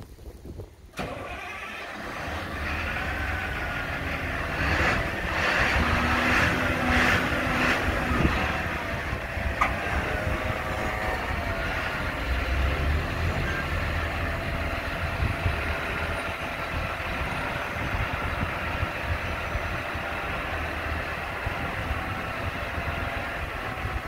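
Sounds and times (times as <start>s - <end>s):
diesel engine running: 0.9s - 24.0s.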